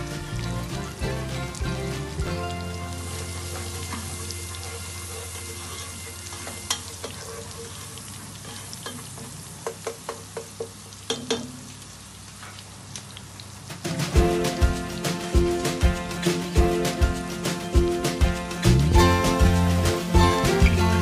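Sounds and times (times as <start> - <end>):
steaks sizzling in a frying pan: 0.0 - 10.1.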